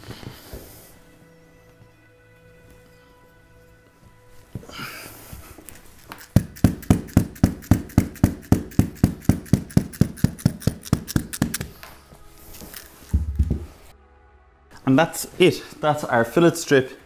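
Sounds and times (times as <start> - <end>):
mallet tapping on rubber: 6.2 - 11.7.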